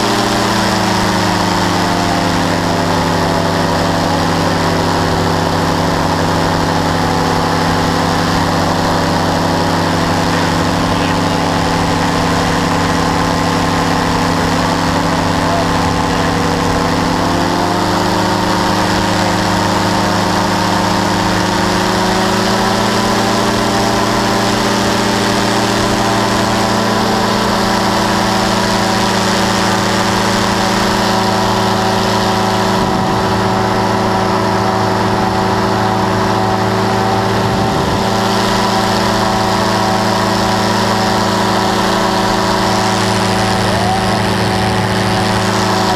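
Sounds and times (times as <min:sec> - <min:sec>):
powered parachute engine running: 0:00.0 - 0:45.9.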